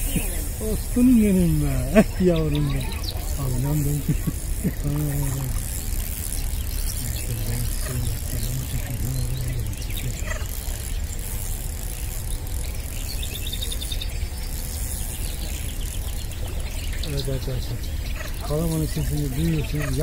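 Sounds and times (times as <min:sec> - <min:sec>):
person talking: 0:00.0 - 0:05.7, 0:07.0 - 0:10.3, 0:17.1 - 0:20.0
high reel clicks: 0:00.0 - 0:17.4
spinning reel being cranked: 0:00.0 - 0:20.0.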